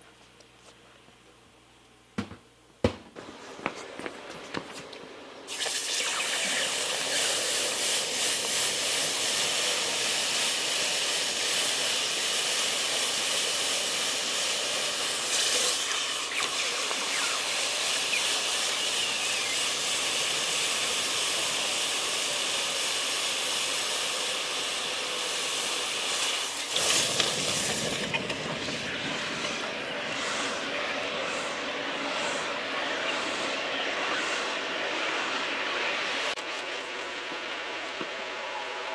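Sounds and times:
water hissing and boiling: 0:05.5 - 0:36.4.

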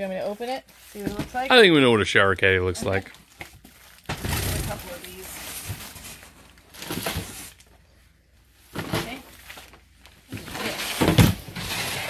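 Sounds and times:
cardboard boxes rustling and knocking: 0:00.8 - 0:01.6, 0:02.7 - 0:07.6, 0:08.6 - 0:12.0.

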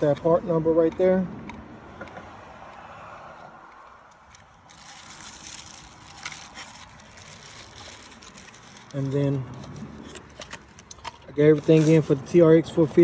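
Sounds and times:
plastic bag crinkling: 0:03.8 - 0:12.3.

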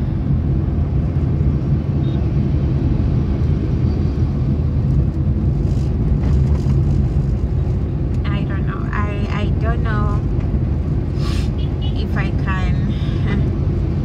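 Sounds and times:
car interior road rumble: 0:00.0 - 0:14.0.

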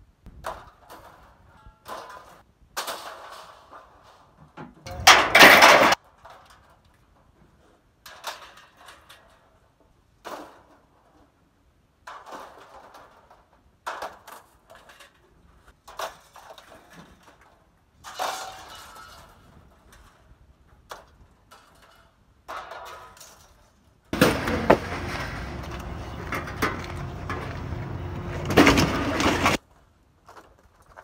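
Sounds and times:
scrap crashing onto pile: 0:01.9 - 0:06.0, 0:24.2 - 0:29.6
metal and plastic pieces clattering: 0:04.9 - 0:06.8, 0:21.5 - 0:29.6.

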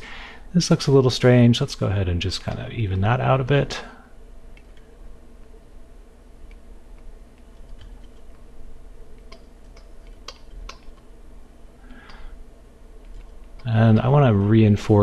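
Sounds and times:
low electrical hum: 0:00.0 - 0:15.0
keyboard and mouse clicks: 0:06.5 - 0:08.4, 0:09.2 - 0:11.1, 0:13.0 - 0:13.7.

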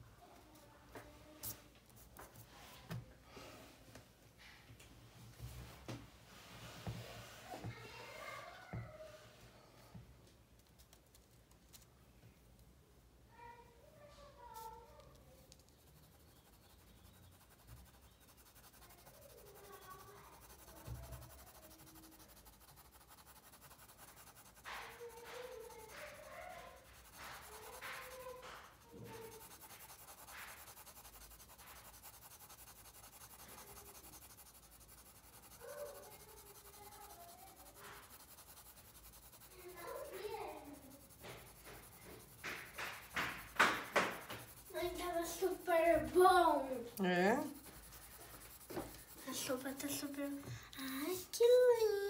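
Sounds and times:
pencil scratching on paper: 0:14.4 - 0:52.0.

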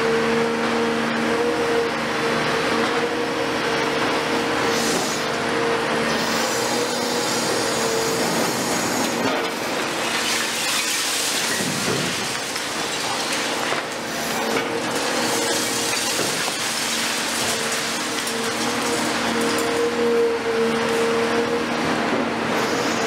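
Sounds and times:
excavator diesel engine and hydraulics: 0:00.0 - 0:23.0
concrete debris breaking: 0:09.8 - 0:19.8.

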